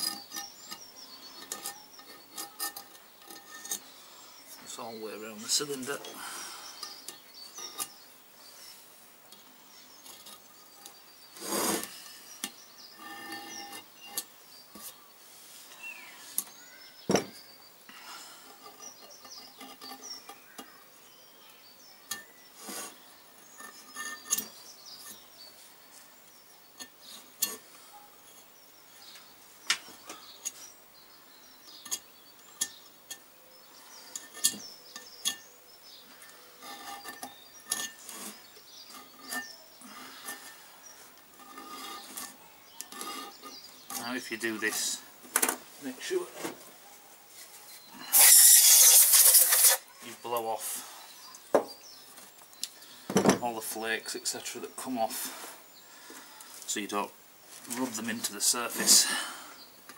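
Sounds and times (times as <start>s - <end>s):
metal tool scraping and clicking: 0.0s - 3.9s, 6.7s - 8.0s, 10.0s - 15.0s, 18.5s - 20.8s, 22.0s - 25.3s, 31.7s - 33.2s, 34.0s - 35.5s, 36.2s - 40.6s, 41.2s - 44.0s
metal on metal knocks: 17.1s - 17.4s.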